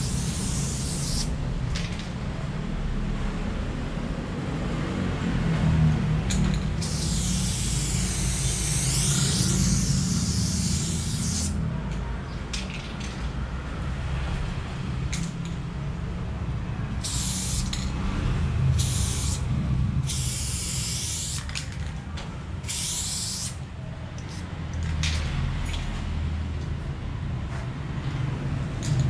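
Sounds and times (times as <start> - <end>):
spray paint can hissing: 0.0 - 1.3, 6.8 - 11.6, 17.0 - 17.9, 18.7 - 21.7, 22.6 - 23.6.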